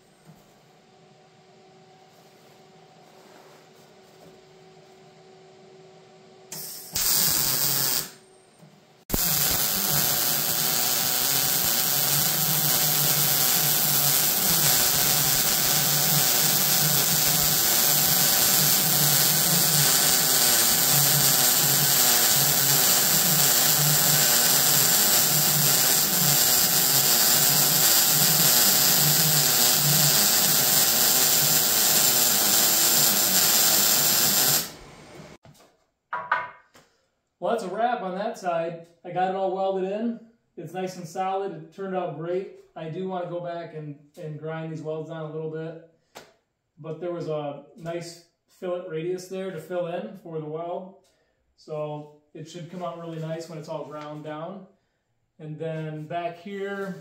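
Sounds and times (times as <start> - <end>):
welder arc running: 6.5 - 8.2, 9.1 - 35.4.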